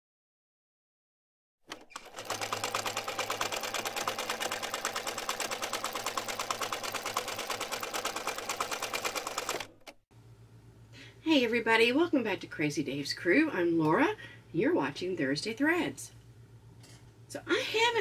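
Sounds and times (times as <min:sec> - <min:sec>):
sewing machine stitching: 0:01.7 - 0:10.0.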